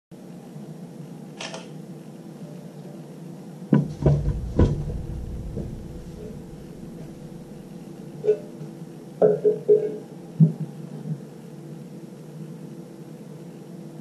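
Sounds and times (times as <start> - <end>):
loud knocks with deep thump: 3.8 - 7.8
steady low hum: 3.8 - 8.1.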